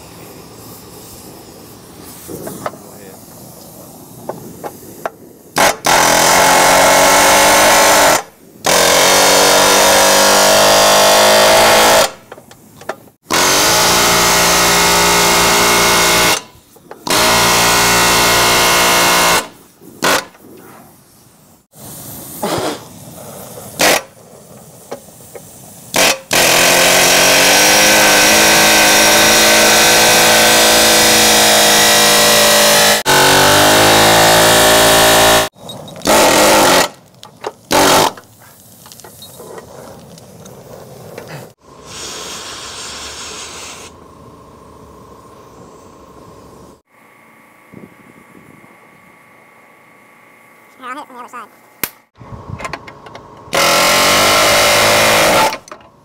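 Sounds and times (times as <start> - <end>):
pneumatic air hammer: 0.0 - 20.5, 21.7 - 39.7, 41.2 - 44.0, 53.4 - 55.9.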